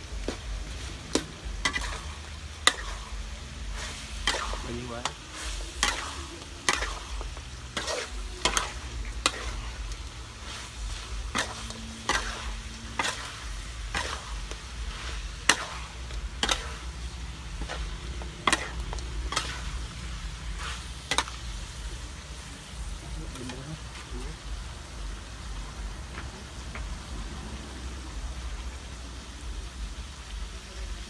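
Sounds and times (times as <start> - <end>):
meat sizzling: 0.0 - 31.0
metal spatula scraping a wok: 0.2 - 24.1.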